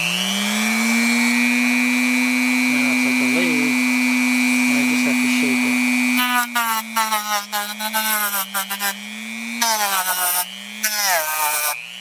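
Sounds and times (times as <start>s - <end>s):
rotary tool motor hum: 0.0s - 12.0s
sandpaper scraping foam: 6.2s - 9.0s, 9.6s - 11.8s.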